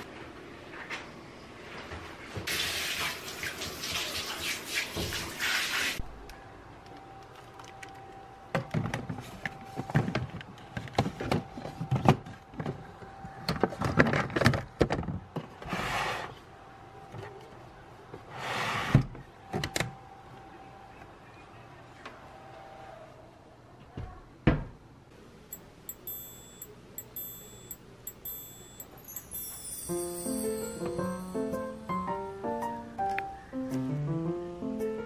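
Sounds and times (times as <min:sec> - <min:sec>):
water tap running: 0:02.5 - 0:05.9.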